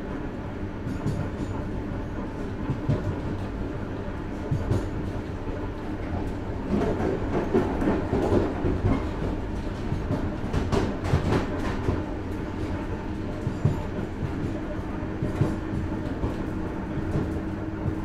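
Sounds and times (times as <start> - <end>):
train wheels clattering over rails: 0.8 - 18.0.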